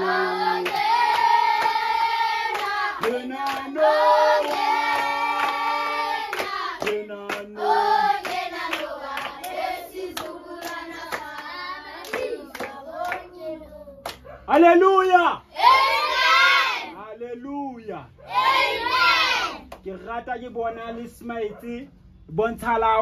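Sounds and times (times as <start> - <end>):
children singing a hymn: 0.0 - 6.8
children clapping hands: 0.6 - 1.9, 2.5 - 3.8, 4.4 - 7.5, 8.1 - 13.3, 14.0 - 14.2.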